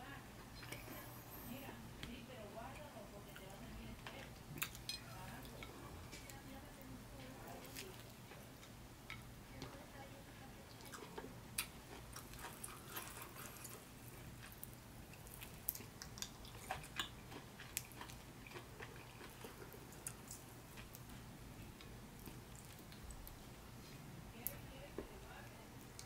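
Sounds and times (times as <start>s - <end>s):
person chewing wetly: 4.4s - 6.3s, 7.5s - 9.3s, 10.7s - 24.0s.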